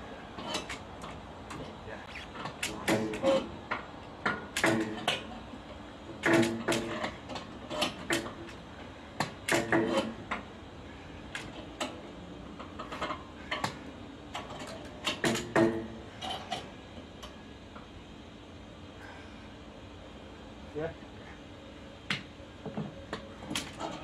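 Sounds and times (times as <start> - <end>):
metal clanks and knocks: 6.2 - 8.4, 9.5 - 10.5, 14.4 - 16.7.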